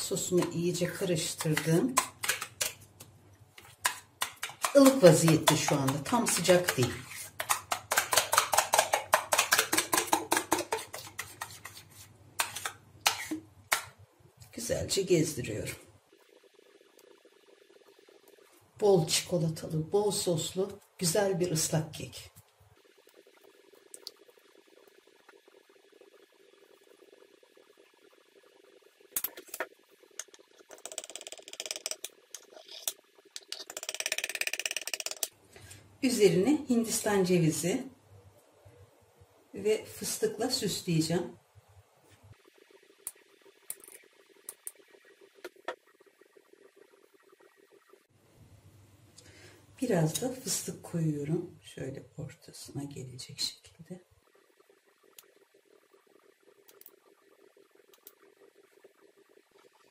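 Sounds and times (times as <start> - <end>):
spoon scraping metal saucepan: 3.6 - 13.4.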